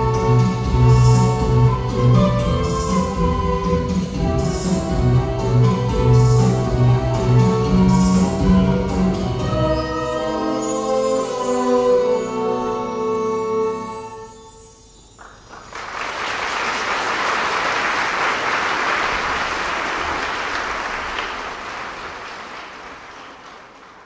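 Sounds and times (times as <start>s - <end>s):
audience applause: 15.2s - 24.0s.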